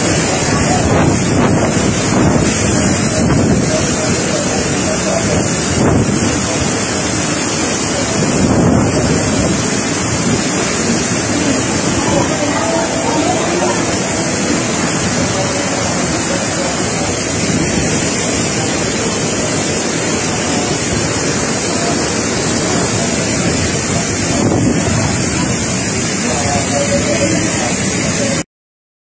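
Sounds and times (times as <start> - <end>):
wind buffeting microphone: 0.0 - 26.4
heavy rain: 0.0 - 28.4
strong wind: 0.0 - 28.4.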